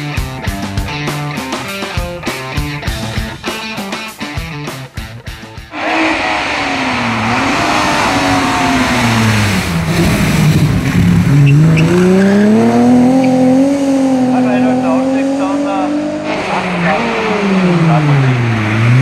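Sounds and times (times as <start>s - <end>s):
rock music: 0.0s - 18.3s
racing car engine running hard: 5.7s - 19.0s.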